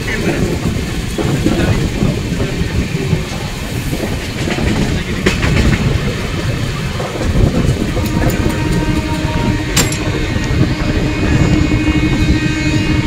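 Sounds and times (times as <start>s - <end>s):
wheels clattering over rail joints: 0.0s - 11.0s
train rumbling: 0.0s - 13.0s
sharp clank: 9.8s - 10.2s.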